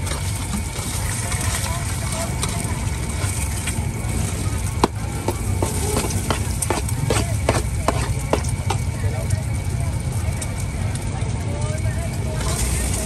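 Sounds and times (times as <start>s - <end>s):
low crowd hum: 3.6s - 9.2s.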